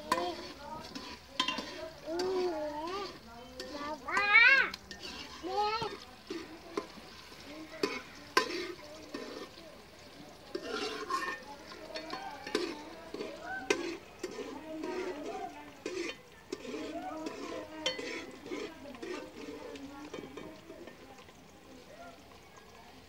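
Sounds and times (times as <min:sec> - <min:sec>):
spoon clinking against pot: 0:00.0 - 0:07.0, 0:07.8 - 0:09.5, 0:10.5 - 0:21.0
faint voices: 0:00.0 - 0:23.0
food frying: 0:00.0 - 0:23.0.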